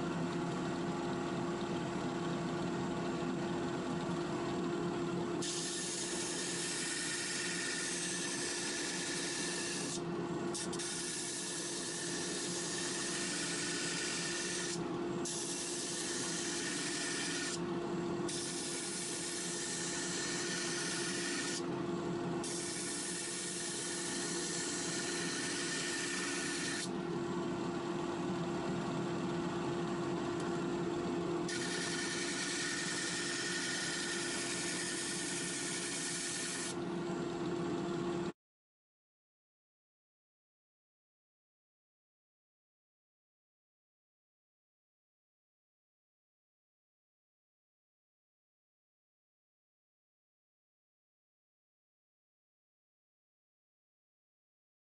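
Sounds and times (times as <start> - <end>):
disc sander motor hum: 0.0 - 38.3.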